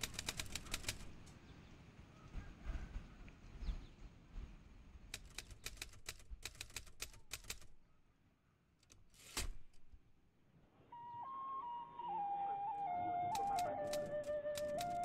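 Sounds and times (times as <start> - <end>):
typewriter keys striking: 0.0 - 1.1, 5.2 - 7.8, 13.3 - 15.0
flute melody: 10.9 - 15.0.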